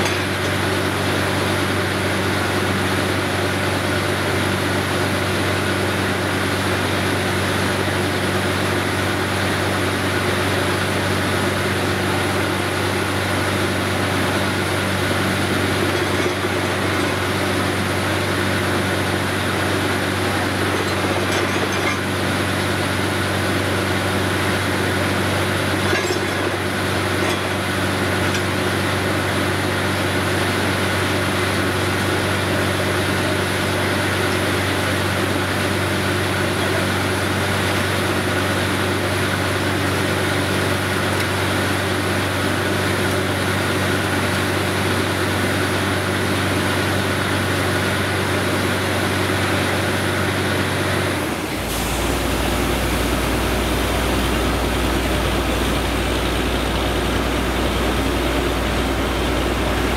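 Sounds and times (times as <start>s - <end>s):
drilling rig engine drone: 0.0s - 59.9s.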